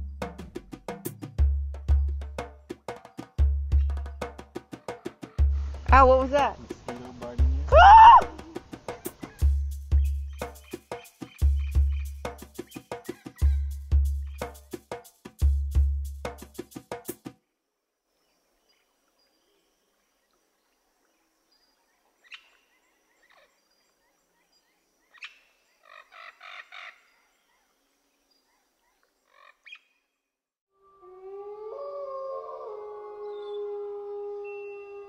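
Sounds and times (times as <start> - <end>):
birds chirping: 4.7 - 14.6, 31.8 - 35.0
loud siren-like wail: 30.8 - 35.0.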